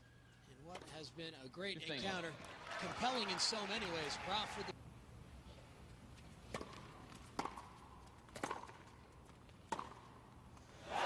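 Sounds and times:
tennis ball struck by rackets: 0:06.5 - 0:08.9, 0:09.7 - 0:10.2.

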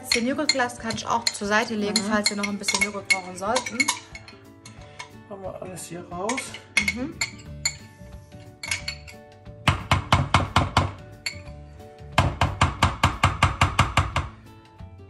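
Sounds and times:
metal spoon clinking against glass: 0:00.0 - 0:05.2, 0:06.3 - 0:09.3, 0:11.2 - 0:11.6
background music: 0:00.0 - 0:15.0.

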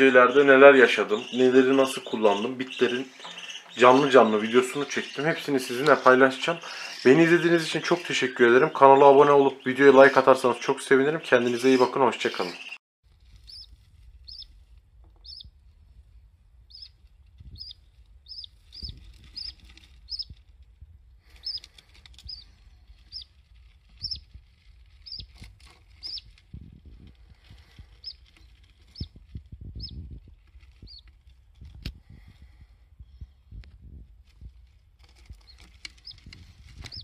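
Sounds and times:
budgerigar chirping: 0:00.0 - 0:10.2, 0:13.5 - 0:13.7, 0:15.2 - 0:15.5, 0:16.7 - 0:16.9, 0:17.6 - 0:20.3, 0:21.4 - 0:21.6, 0:24.0 - 0:24.2, 0:25.0 - 0:25.3, 0:26.0 - 0:26.2.

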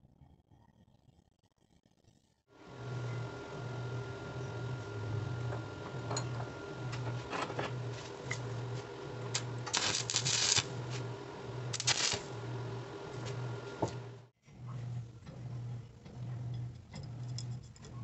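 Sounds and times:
crackling welding arc: 0:09.3 - 0:11.1, 0:11.7 - 0:12.4.

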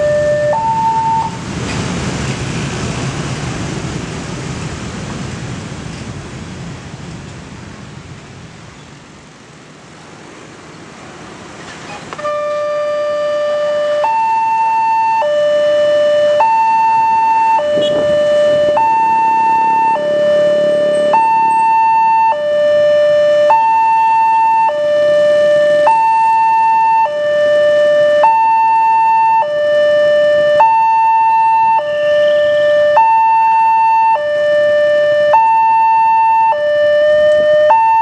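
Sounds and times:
two-tone level-crossing alarm: 0:00.0 - 0:01.4, 0:12.3 - 0:38.0
motorcycle and car traffic: 0:00.0 - 0:38.0.

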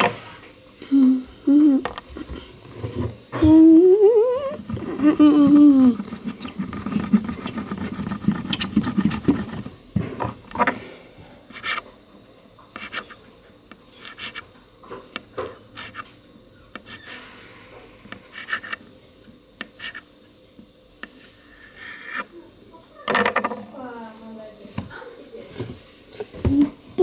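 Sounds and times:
plasticine rubbing on tabletop: 0:04.6 - 0:09.8, 0:18.2 - 0:18.8, 0:19.7 - 0:20.0, 0:21.1 - 0:22.3.

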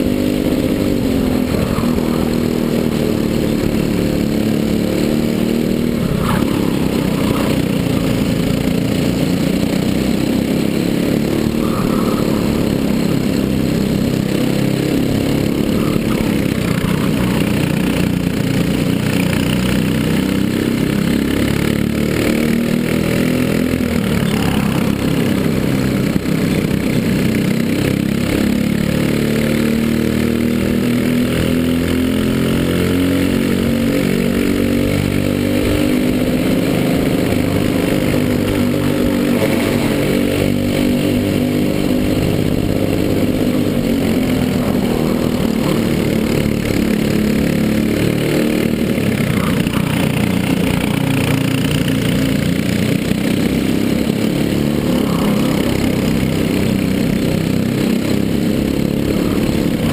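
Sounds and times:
kart engine racing: 0:00.0 - 0:59.9.

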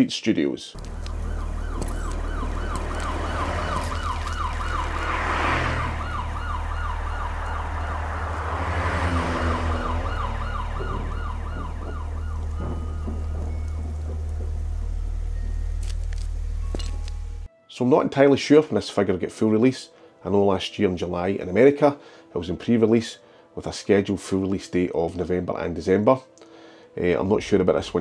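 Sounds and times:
siren-like electronic warble: 0:00.8 - 0:15.3
deep bass drone: 0:00.8 - 0:17.5.

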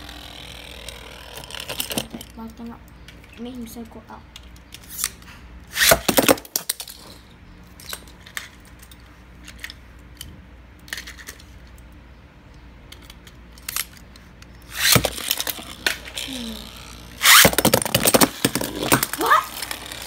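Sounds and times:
spinning tops launching rasp: 0:00.0 - 0:02.3, 0:04.8 - 0:07.0, 0:14.6 - 0:20.0
spinning tops whirring: 0:00.0 - 0:02.3, 0:14.6 - 0:20.0.

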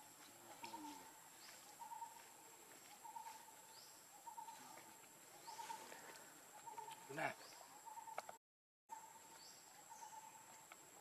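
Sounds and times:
rising bird chirps: 0:05.4 - 0:10.4
bird call: 0:05.4 - 0:10.5.

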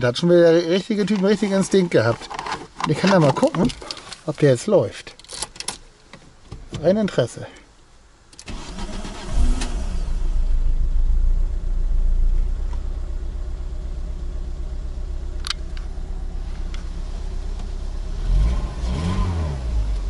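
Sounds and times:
car engine starting and idling: 0:08.3 - 0:20.0.

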